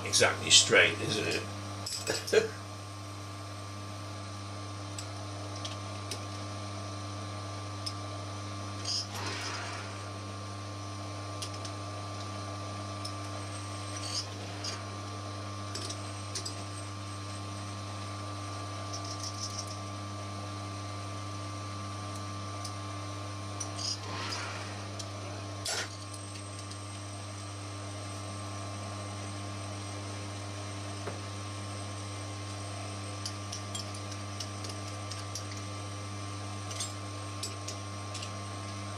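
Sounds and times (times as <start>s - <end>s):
lathe motor hum: 9.0s - 11.7s.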